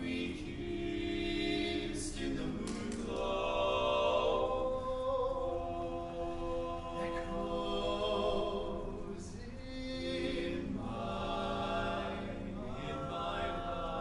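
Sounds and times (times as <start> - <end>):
male quartet singing a cappella: 0.0 - 14.0.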